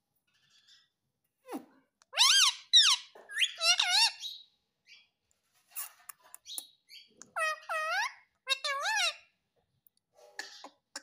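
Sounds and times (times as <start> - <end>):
parrot squeaky calls: 0.4 - 5.1, 5.8 - 9.4.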